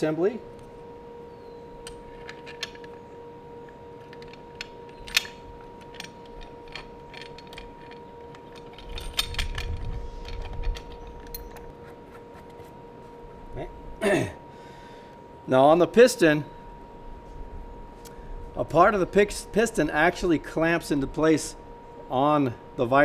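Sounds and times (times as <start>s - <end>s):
faint steady hum: 0.0s - 23.0s
small metal clicks and knocks: 1.8s - 3.0s, 3.7s - 11.7s.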